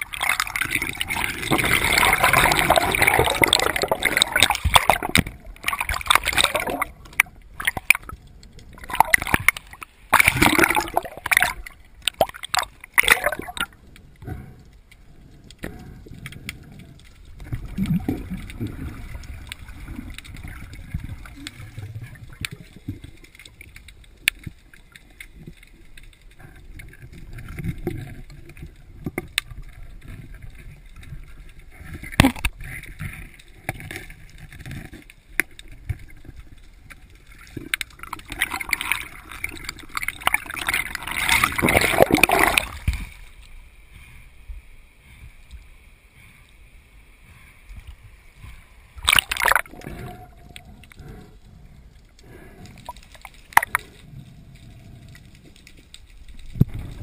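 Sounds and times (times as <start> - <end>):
bubbly bursts: 0.0 - 8.0, 8.7 - 13.8, 17.4 - 22.7, 37.4 - 43.1, 49.0 - 50.4
muffled underwater gurgling: 0.0 - 14.6.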